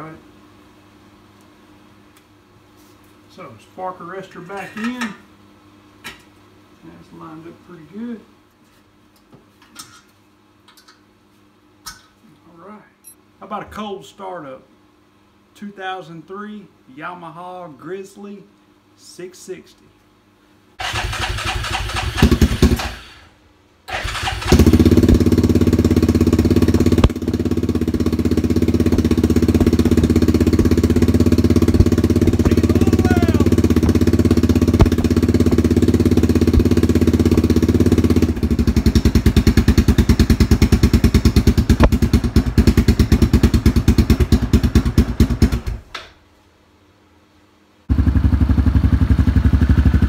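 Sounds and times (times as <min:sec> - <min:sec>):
engine running and idling: 0:24.1 - 0:45.7, 0:47.9 - 0:50.0.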